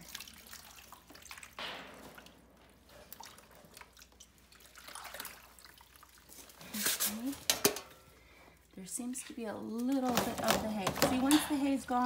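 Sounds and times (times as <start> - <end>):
water trickling in metal gutter: 0.0 - 8.4.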